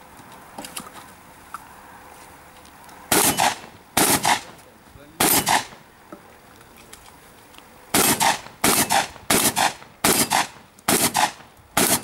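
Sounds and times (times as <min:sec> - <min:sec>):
shotgun shots: 0:03.1 - 0:04.6, 0:05.2 - 0:05.8, 0:07.9 - 0:12.0.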